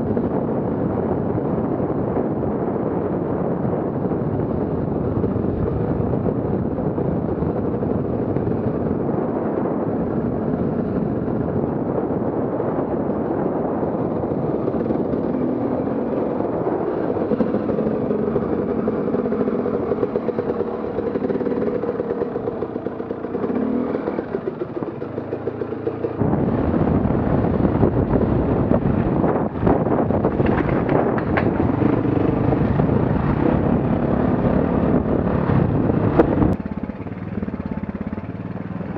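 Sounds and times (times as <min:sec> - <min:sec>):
off-road vehicle engine running: 0:00.0 - 0:38.9
wind on microphone: 0:00.0 - 0:38.9
sharp engine knocks: 0:30.2 - 0:31.8.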